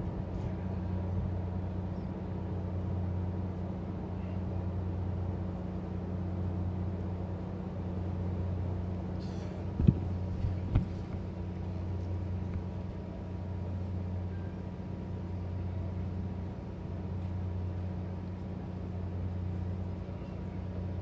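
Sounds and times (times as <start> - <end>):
ship engine humming: 0.0 - 21.0.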